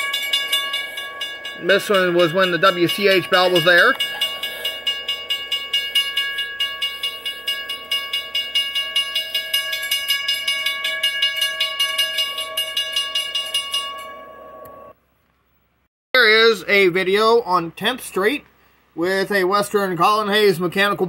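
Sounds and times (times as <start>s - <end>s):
railroad crossing bell ringing: 0.0s - 15.0s.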